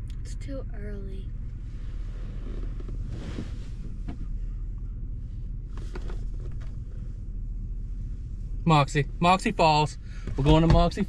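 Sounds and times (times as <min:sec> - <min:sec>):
vehicle engine idling: 0:00.0 - 0:11.0
soft rustle: 0:01.5 - 0:08.6.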